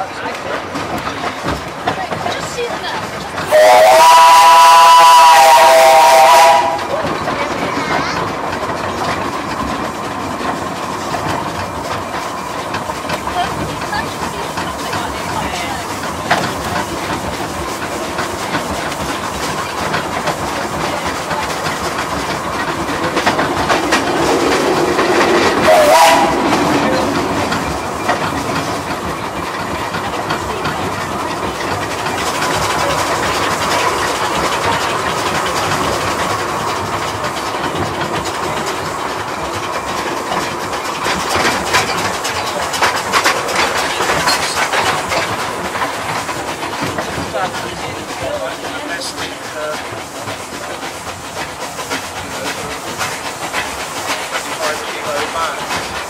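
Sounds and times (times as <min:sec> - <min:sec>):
rail clatter: 0:00.0 - 0:56.0
steam locomotive running: 0:00.0 - 0:56.0.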